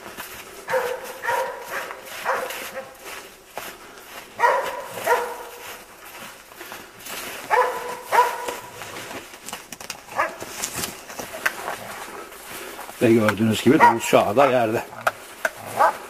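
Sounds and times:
dogs baying and barking: 0.5s - 3.3s, 4.3s - 6.0s, 7.4s - 9.1s, 10.0s - 10.6s, 13.6s - 16.0s.

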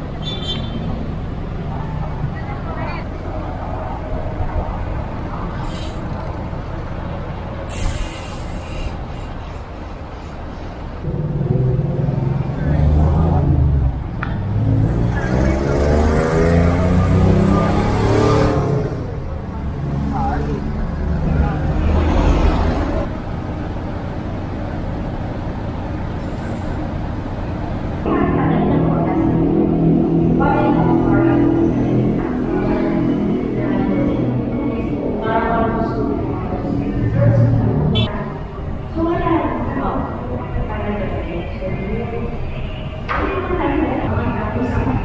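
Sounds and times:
road traffic rumble: 0.0s - 45.0s
vehicle engine hum: 0.0s - 45.0s
short hiss: 7.7s - 9.6s.

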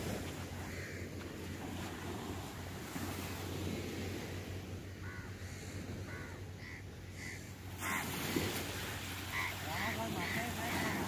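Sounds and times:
surf: 0.0s - 11.0s
wind: 0.0s - 11.0s
crows cawing: 5.0s - 8.4s, 9.3s - 11.0s.

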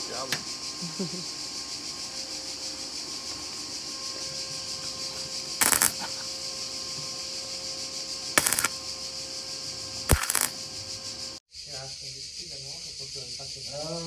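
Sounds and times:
faint hum: 0.0s - 11.4s
steady high hiss: 0.0s - 14.0s.

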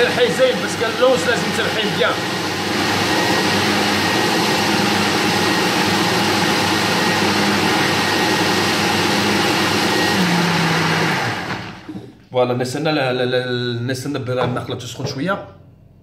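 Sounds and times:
blender motor running: 0.0s - 11.9s.

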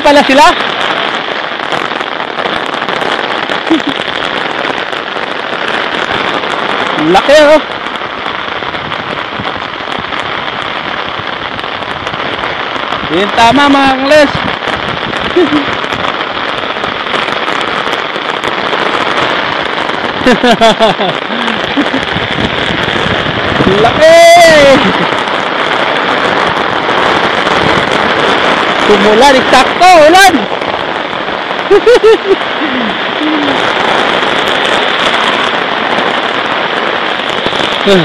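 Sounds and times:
person speaking: 0.0s - 0.6s, 23.6s - 25.1s, 28.8s - 30.5s, 32.0s - 33.6s, 37.8s - 38.0s
rain falling: 0.0s - 38.0s.

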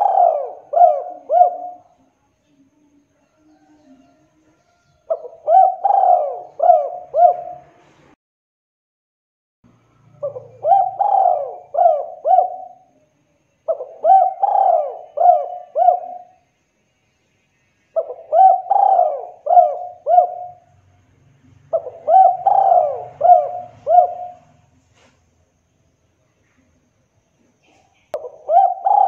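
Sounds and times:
dove cooing: 0.0s - 2.0s, 5.0s - 7.8s, 10.2s - 12.9s, 13.7s - 16.4s, 18.0s - 20.7s, 21.6s - 24.7s, 27.6s - 29.0s.

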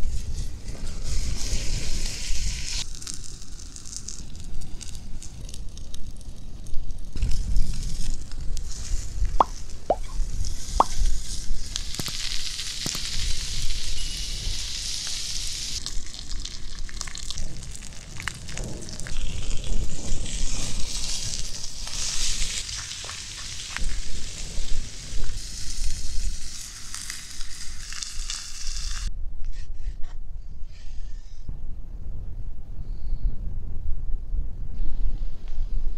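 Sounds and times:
sharp crackles: 0.0s - 29.1s
steaks sizzling: 9.9s - 29.1s.

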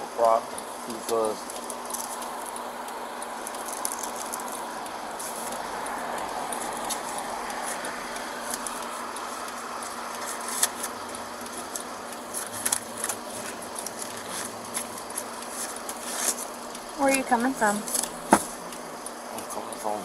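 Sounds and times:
car engine idling: 0.0s - 20.0s
papers crackling: 3.4s - 16.7s.

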